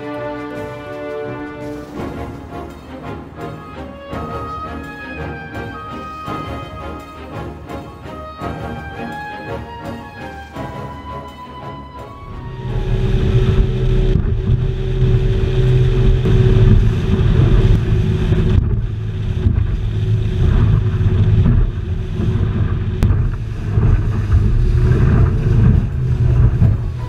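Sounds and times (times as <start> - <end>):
outboard engine drone: 0.0 - 27.0
water rushing past hull: 0.0 - 27.0
wind buffeting microphone: 12.2 - 27.0.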